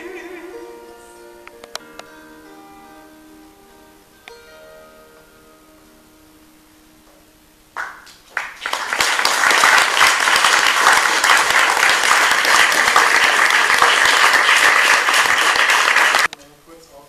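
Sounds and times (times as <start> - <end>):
audience applauding: 7.8 - 16.3.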